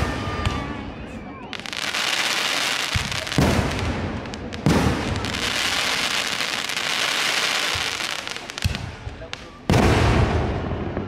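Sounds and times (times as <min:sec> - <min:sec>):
fireworks crackling: 0:00.0 - 0:11.0
fireworks bang: 0:02.6 - 0:06.8, 0:07.6 - 0:11.0.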